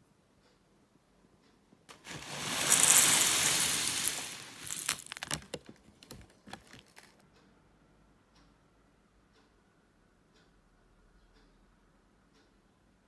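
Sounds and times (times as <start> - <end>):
cereal poured into a bowl: 1.9 - 7.1.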